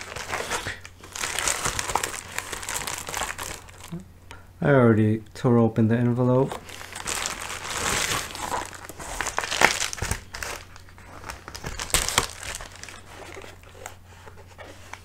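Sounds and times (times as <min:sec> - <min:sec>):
mailer envelope crinkling: 0:00.0 - 0:04.0, 0:06.5 - 0:14.0.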